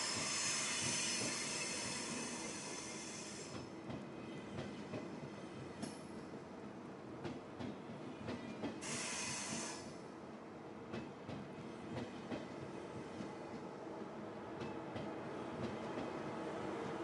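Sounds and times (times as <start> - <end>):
train rumbling past: 0.0 - 17.0
brief high hiss: 8.8 - 9.9.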